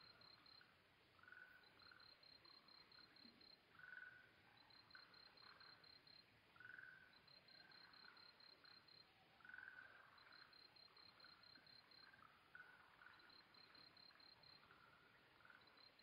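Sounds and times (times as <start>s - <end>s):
crickets chirping: 0.0s - 16.0s
frog calls: 9.4s - 14.8s.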